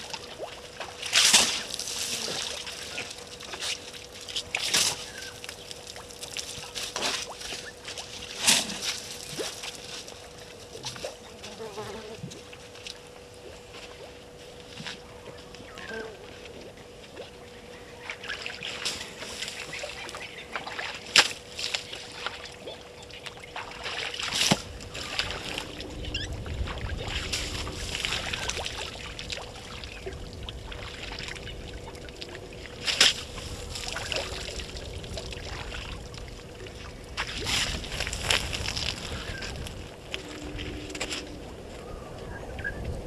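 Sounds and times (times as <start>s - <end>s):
faint steady hum: 0.0s - 43.0s
low rumbling noise: 12.3s - 43.0s.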